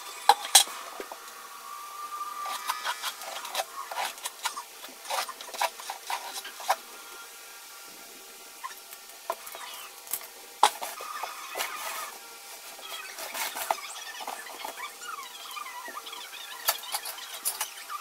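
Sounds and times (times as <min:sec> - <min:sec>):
box and bucket scraping on tile: 0:02.4 - 0:06.8, 0:10.6 - 0:14.8
mouse squeaking: 0:08.6 - 0:08.8, 0:09.4 - 0:10.0, 0:10.9 - 0:18.0.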